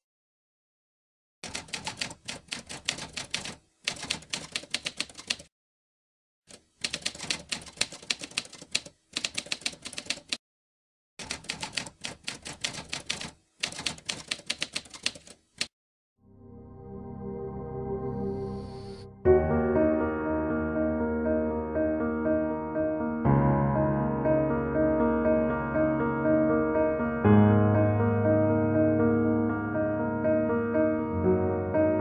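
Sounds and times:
typewriter keys clacking: 0:01.4 - 0:05.5, 0:06.5 - 0:10.4, 0:11.2 - 0:15.7.

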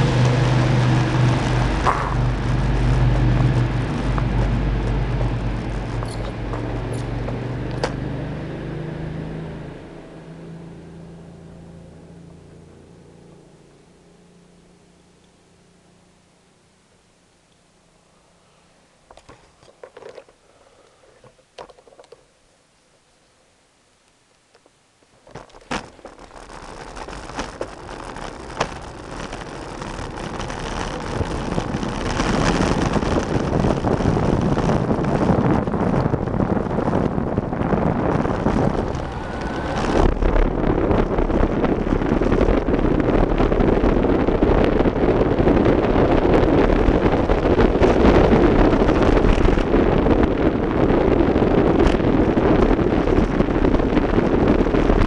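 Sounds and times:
wind rushing over microphone: 0:00.0 - 0:13.6, 0:25.3 - 0:55.0
deep rumble: 0:00.0 - 0:16.4, 0:25.3 - 0:55.0.

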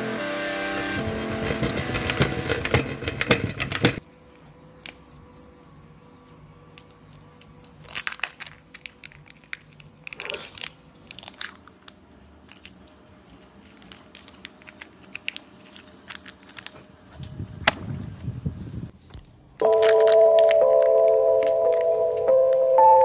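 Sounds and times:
plastic shell and foil crackling: 0:06.8 - 0:17.0, 0:19.6 - 0:22.0.

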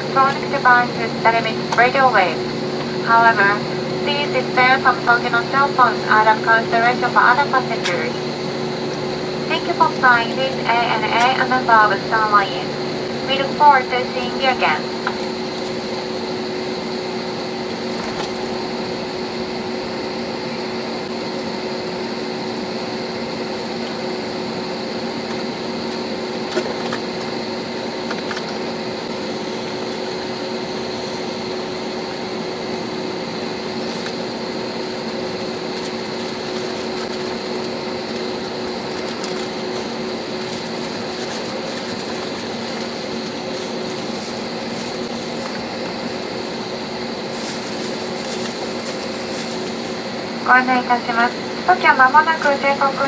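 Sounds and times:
jet engines idle hum and whine: 0:00.0 - 0:53.0
cabin air rushing: 0:23.6 - 0:53.0.

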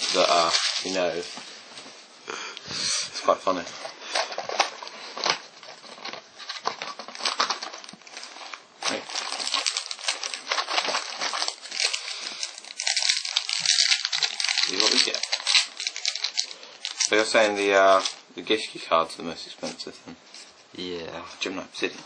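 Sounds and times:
foil packs crinkling: 0:00.0 - 0:01.4, 0:03.5 - 0:18.8.

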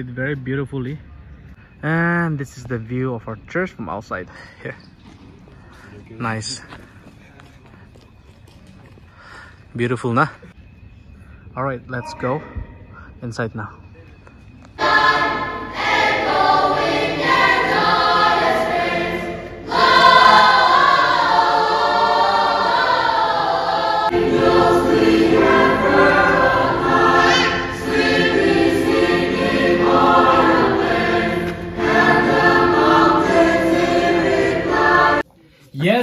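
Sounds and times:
children's choir singing: 0:14.8 - 0:35.2.

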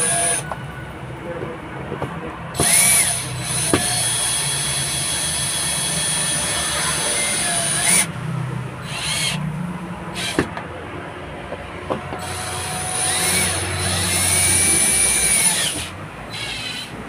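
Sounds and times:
cordless drill driving screws: 0:00.0 - 0:00.4, 0:02.6 - 0:08.1, 0:08.8 - 0:09.4, 0:10.2 - 0:10.5, 0:12.2 - 0:17.0.

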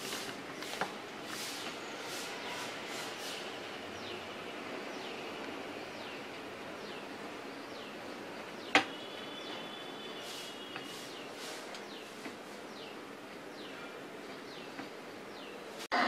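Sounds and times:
steady background hiss: 0:00.0 - 0:16.0
bird chirping: 0:01.5 - 0:15.7.

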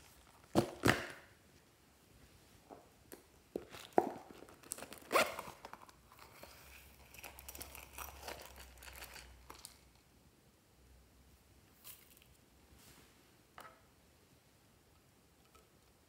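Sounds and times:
plastic packaging crinkling: 0:03.6 - 0:09.9.

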